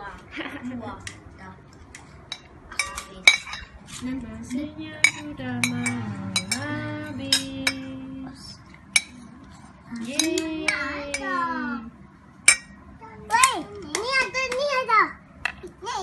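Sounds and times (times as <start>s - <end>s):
metal spoon scraping plate: 5.0s - 7.5s.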